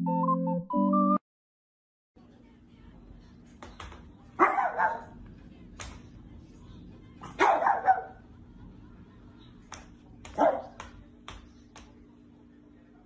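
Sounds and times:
small dog barking: 4.4 - 5.2, 7.2 - 8.2, 10.4 - 10.8.

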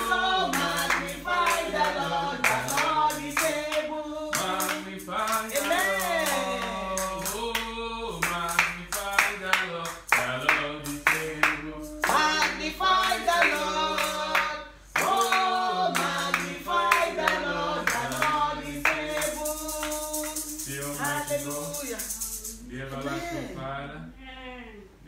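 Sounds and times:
hand clapping: 0.0 - 22.6
shaker rattling: 0.0 - 23.0.

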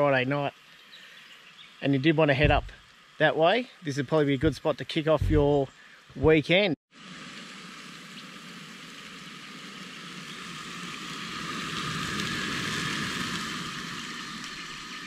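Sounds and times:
chicken sizzling in a frying pan: 7.0 - 15.0.

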